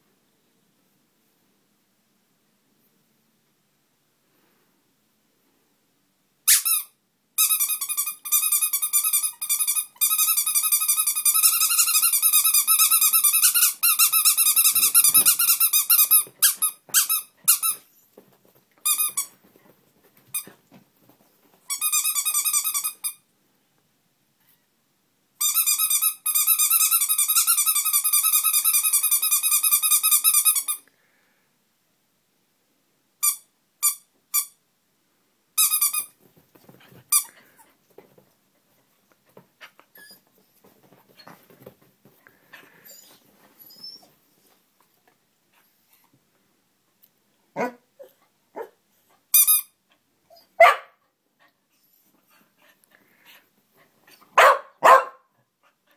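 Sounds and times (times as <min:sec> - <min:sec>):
rubber duck toy squeaking: 0:06.5 - 0:17.8, 0:49.3 - 0:49.7.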